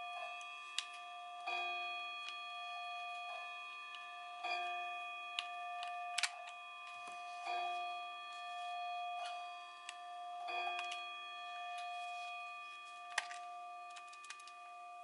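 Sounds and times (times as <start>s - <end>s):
small plastic parts clicking: 5.4s - 6.6s, 10.8s - 11.0s, 13.1s - 14.6s.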